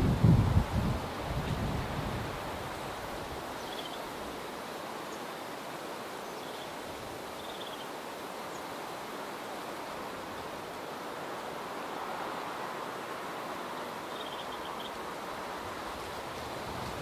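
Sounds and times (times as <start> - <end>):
strong wind rushing: 0.0 - 3.1
wind buffeting microphone: 0.0 - 3.5, 15.5 - 17.0.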